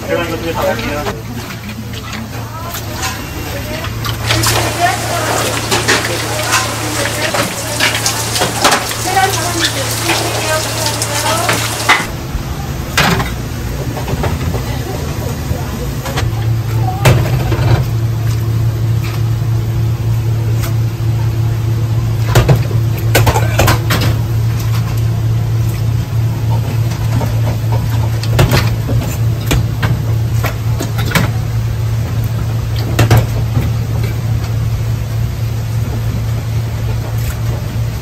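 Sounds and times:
low machine hum: 0.0s - 38.0s
steel bowls clinking: 4.2s - 12.1s.

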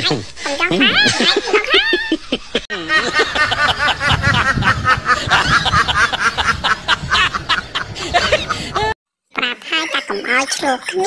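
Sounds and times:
snickering laughter: 0.7s - 9.0s.

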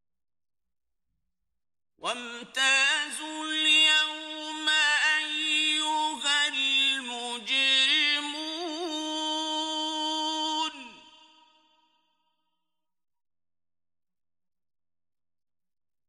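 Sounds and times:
man chanting melodically: 2.0s - 11.2s.

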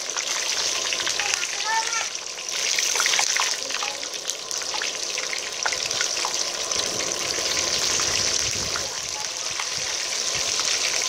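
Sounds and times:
fish sizzling in hot oil: 0.0s - 11.0s
oil crackles and pops: 0.0s - 11.0s.

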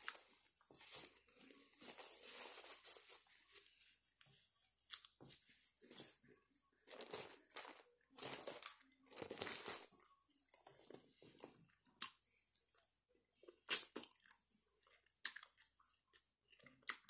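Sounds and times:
wrapper crinkling and rustling: 0.0s - 3.9s, 6.9s - 10.0s
person chewing and crunching: 4.8s - 5.2s, 6.9s - 17.0s.

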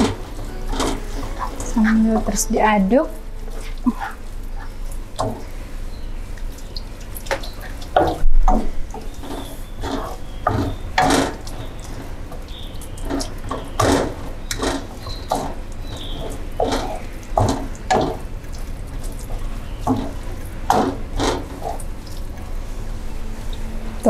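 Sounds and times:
wooden spatula stirring thick sauce: 7.3s - 22.8s.

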